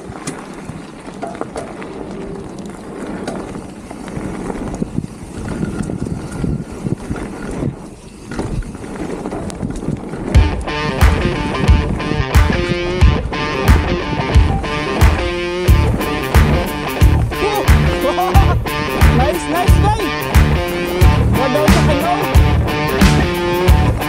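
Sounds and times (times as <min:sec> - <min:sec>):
bike rattling and clicking: 0:00.0 - 0:24.0
wind buffeting microphone: 0:00.0 - 0:24.0
music with loud beat: 0:10.4 - 0:24.0.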